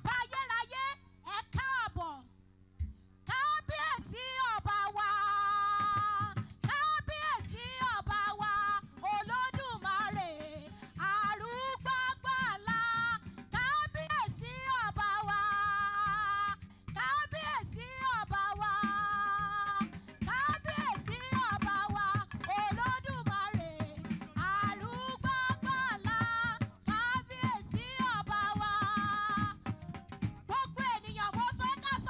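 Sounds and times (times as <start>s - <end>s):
woman singing gospel: 0.0s - 2.2s, 3.3s - 29.8s, 30.5s - 32.0s
instrumental backing: 19.0s - 32.0s.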